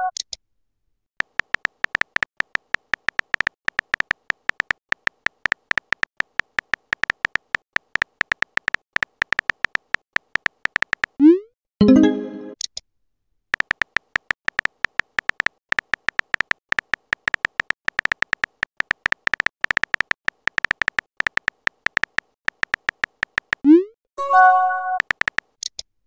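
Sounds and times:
electronic keyboard tap sounds: 1.2s - 11.2s, 13.5s - 23.7s, 24.9s - 25.5s.

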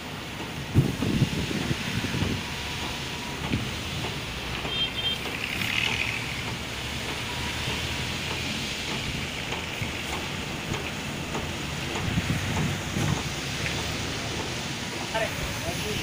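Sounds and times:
wind-like hiss: 0.0s - 4.7s, 5.4s - 16.0s.

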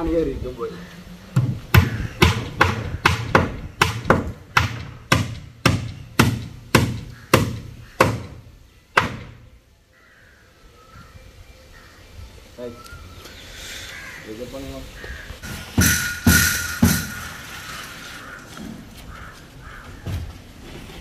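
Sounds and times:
hammer striking timber: 1.4s - 8.4s, 9.0s - 9.4s, 15.4s - 17.5s.

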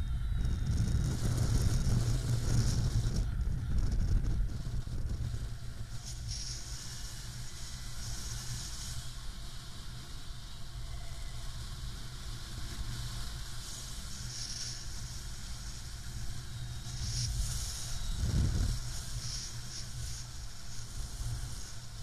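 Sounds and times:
wind buffeting microphone: 0.0s - 7.9s, 15.0s - 22.0s.

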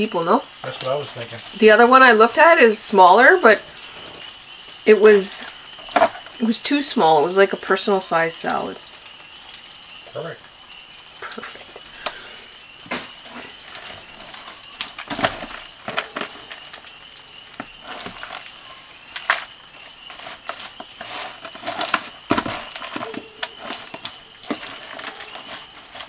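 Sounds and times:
lettuce rustling: 11.8s - 26.0s.

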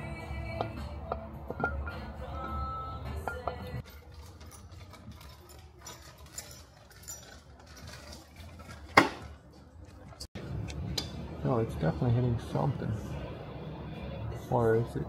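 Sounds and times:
background music: 0.0s - 3.9s.

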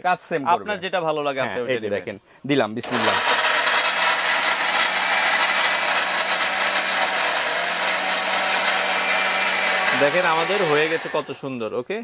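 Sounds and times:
mixer grinder motor whirring: 2.8s - 11.4s.

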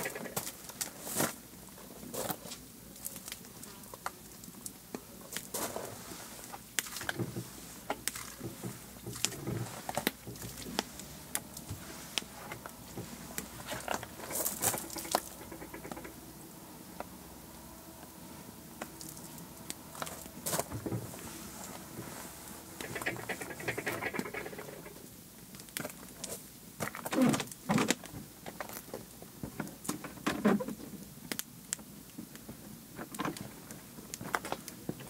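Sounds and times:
cloth wiping wet wood: 7.4s - 15.6s, 20.0s - 24.0s.

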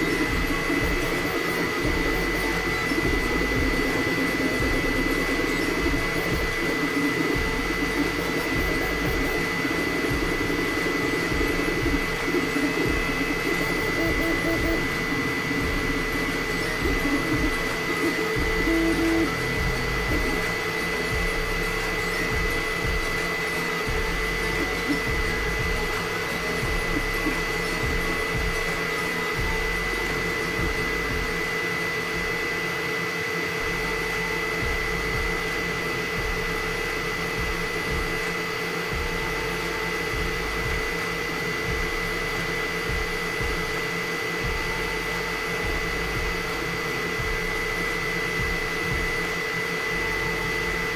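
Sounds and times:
stepper motors shifting: 0.0s - 31.5s
fan whir with high whine: 0.0s - 50.9s.

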